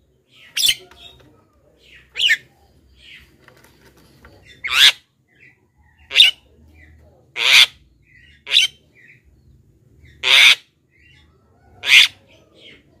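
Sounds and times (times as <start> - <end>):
bird harsh rasping calls: 2.0 - 3.3, 4.4 - 5.1, 7.3 - 9.2, 10.0 - 10.8, 11.8 - 12.2.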